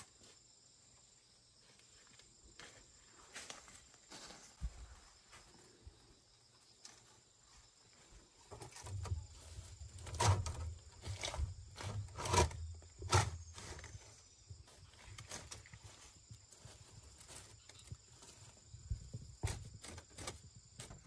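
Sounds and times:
bamboo strips rustling and clattering: 8.0s - 18.6s, 19.4s - 21.0s.

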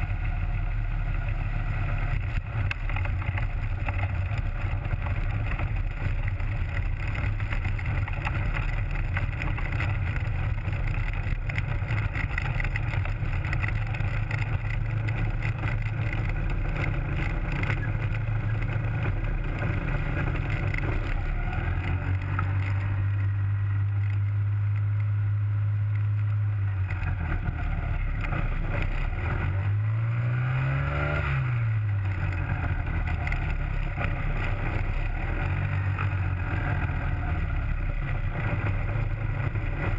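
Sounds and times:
ultralight aircraft engine: 0.0s - 29.9s.

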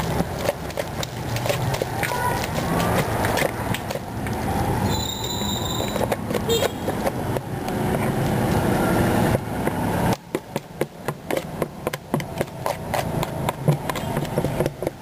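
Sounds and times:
street traffic rumble: 0.0s - 15.0s
sharp knocks and clicks: 9.3s - 15.0s.

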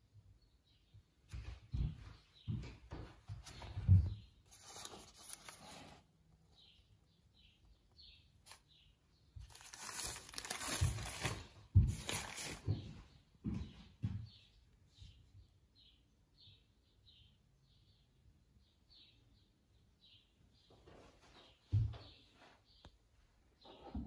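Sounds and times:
paper rustling and crinkling: 3.4s - 6.1s, 9.4s - 12.8s.

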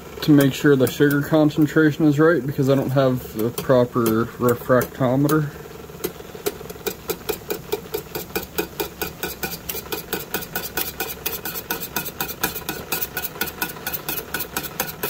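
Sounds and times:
steady low hum: 0.0s - 15.0s
whisk clicking against pot: 0.2s - 15.0s.

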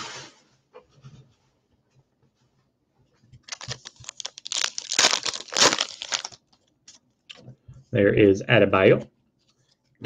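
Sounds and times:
foil wrapper crinkling and tearing: 3.4s - 7.0s.

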